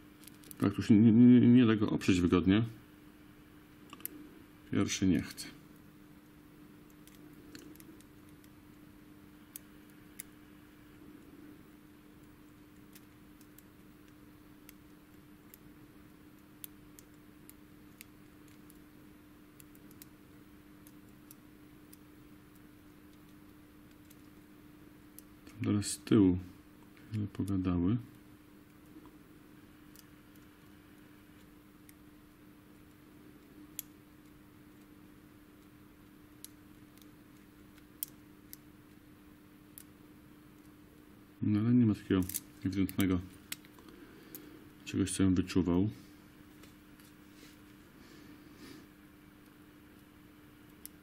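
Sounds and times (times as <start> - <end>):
low steady hum: 0.0 - 51.0.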